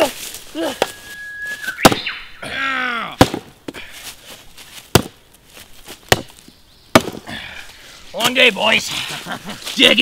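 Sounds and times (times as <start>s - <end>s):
tool chopping into ground: 1.8s - 2.1s, 3.2s - 3.5s, 4.9s - 5.2s, 5.9s - 7.3s.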